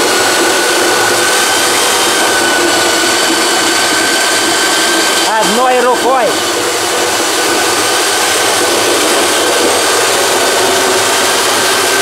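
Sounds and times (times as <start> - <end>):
apples grinding in crusher: 0.0 - 12.0
rotary hammer motor whine: 0.0 - 12.0.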